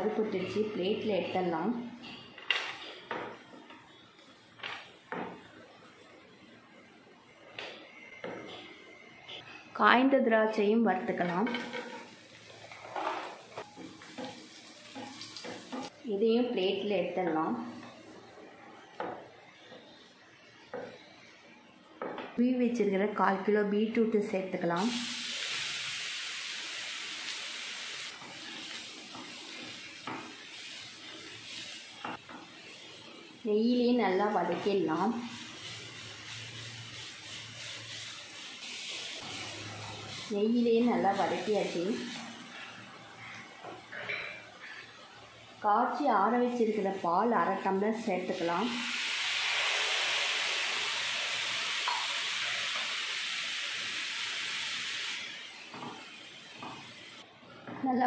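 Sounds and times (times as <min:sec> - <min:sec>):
beetroot sizzling in frying pan: 0:11.0 - 0:18.2, 0:24.6 - 0:43.0, 0:43.6 - 0:57.3.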